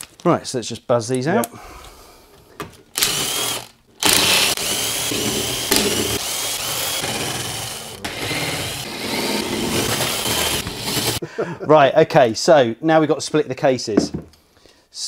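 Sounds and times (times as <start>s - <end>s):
cordless drill motor whining: 2.9s - 11.2s.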